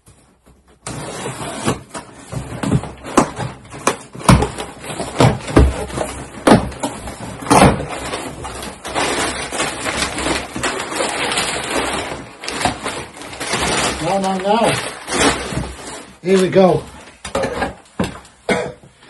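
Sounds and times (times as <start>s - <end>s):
boxes knocking and bumping: 0.0s - 19.0s
rustling: 4.5s - 17.3s.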